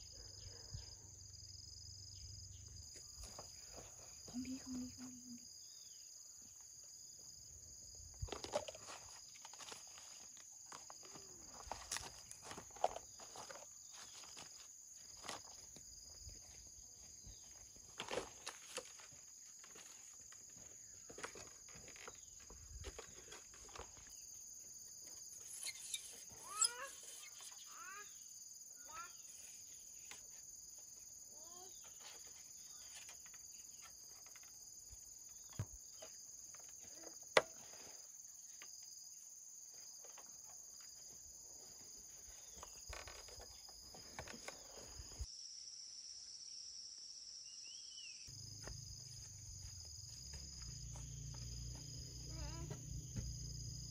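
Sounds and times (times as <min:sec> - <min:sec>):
high-pitched insect drone: 0:25.4 - 0:29.8, 0:48.0 - 0:53.9.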